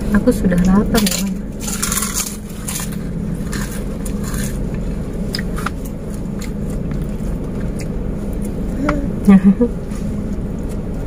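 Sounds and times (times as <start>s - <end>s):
eating scrapes and clicks: 0.5s - 8.7s.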